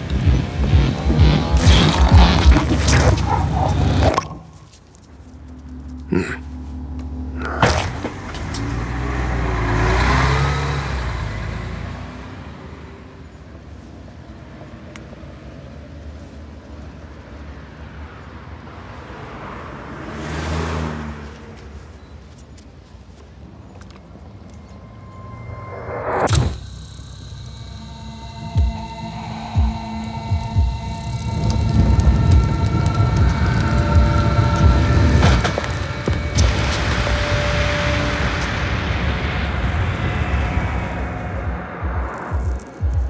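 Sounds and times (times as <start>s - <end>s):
loud rush: 0.0s - 4.7s, 27.7s - 43.0s
vehicle engine passing: 0.0s - 13.2s, 28.2s - 43.0s
low traffic hum: 0.0s - 43.0s.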